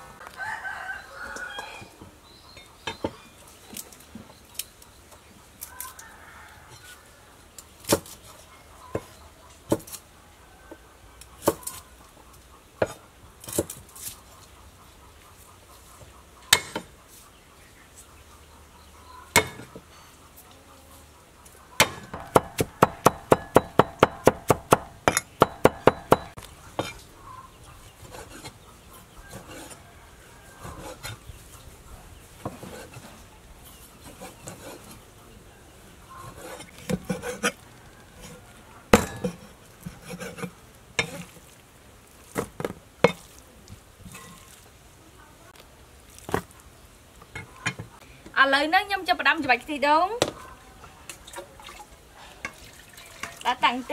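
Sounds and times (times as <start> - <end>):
cleaver chopping meat on board: 21.8 - 26.4.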